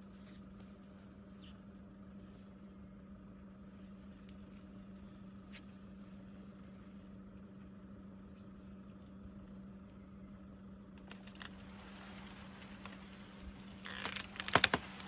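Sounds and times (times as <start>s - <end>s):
faint low hum: 0.0s - 15.0s
light hiss: 10.8s - 15.0s.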